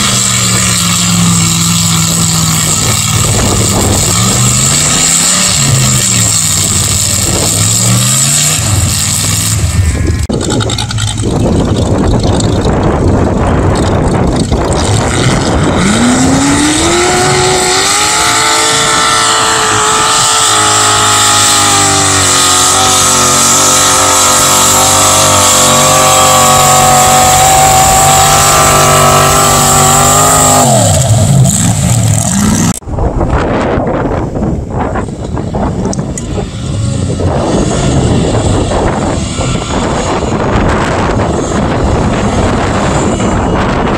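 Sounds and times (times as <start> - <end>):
truck engine revving: 0.0 - 43.9.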